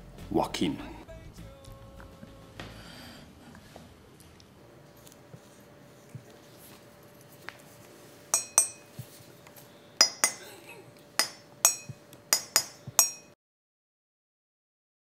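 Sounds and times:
ceramic mugs clinking: 8.3 - 9.0, 10.0 - 10.5, 11.2 - 13.4.

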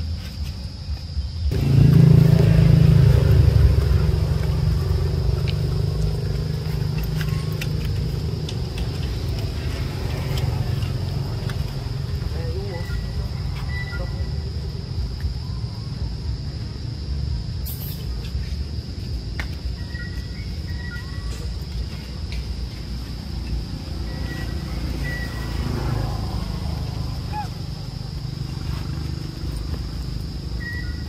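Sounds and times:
high-pitched insect drone: 0.0 - 31.0
low rumble: 1.5 - 12.5.

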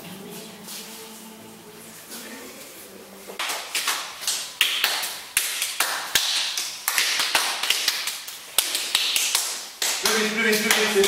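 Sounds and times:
people clapping a rhythm: 3.4 - 11.0.

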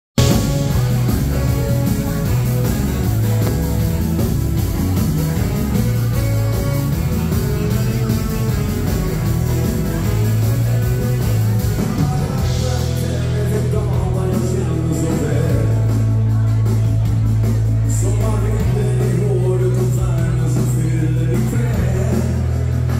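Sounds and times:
dance band playing: 0.2 - 22.9
man singing: 6.8 - 16.4, 17.8 - 22.9.

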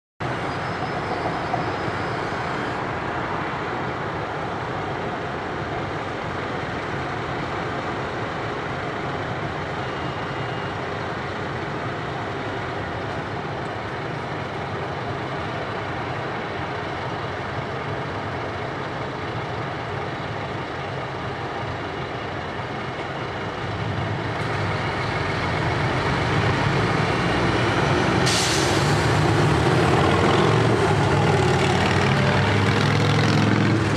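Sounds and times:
bus approaching: 0.2 - 33.9
city street traffic: 0.2 - 33.9
short hiss: 28.3 - 28.9.

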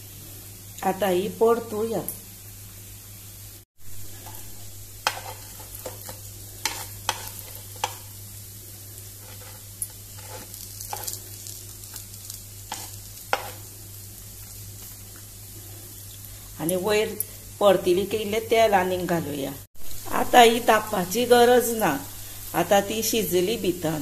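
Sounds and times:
food sizzling in oil: 0.0 - 24.0
spoon clinking and scraping pan: 4.2 - 8.1, 9.2 - 11.2, 12.7 - 13.7.

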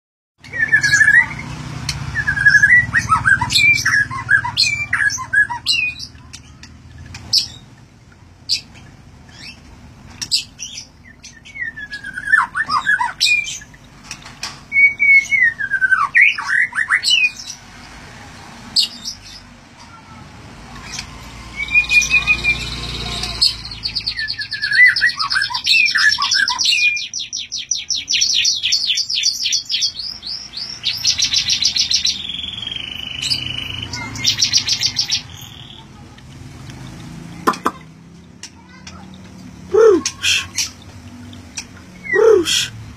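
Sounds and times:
bird singing whistles and trills: 0.4 - 1.5, 2.1 - 6.1, 10.3 - 13.8, 14.7 - 17.4, 21.5 - 35.8.

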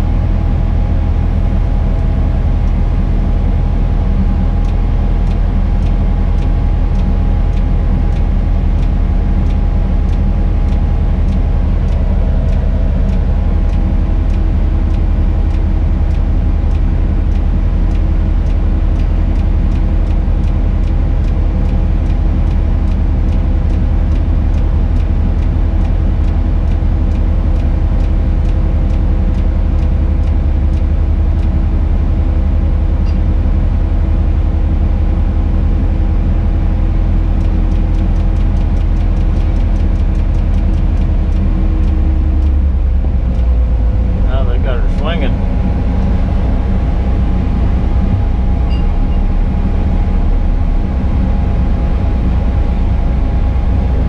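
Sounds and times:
crane engine running: 0.0 - 54.0
faint regular ticking: 3.8 - 31.7, 36.2 - 46.6.

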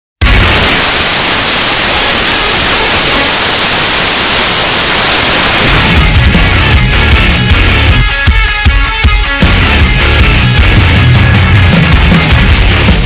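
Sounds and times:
static white noise hiss: 0.2 - 6.2
heavy rock music: 0.2 - 13.0.

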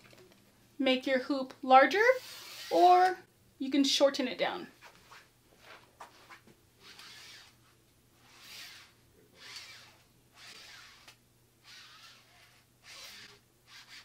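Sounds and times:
rubbing and scuffing of tube: 4.8 - 11.2.

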